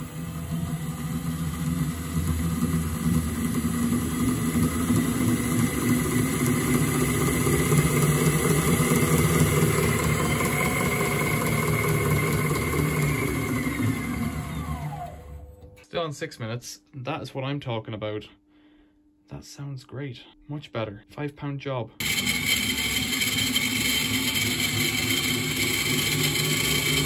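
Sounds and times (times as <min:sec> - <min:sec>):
washing machine spinning: 0:00.0 - 0:15.8, 0:22.0 - 0:27.0.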